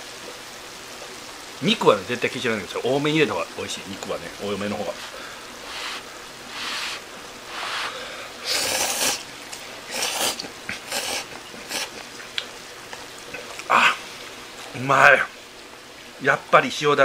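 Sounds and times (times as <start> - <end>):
man slurping noodles: 5.6 - 12.1.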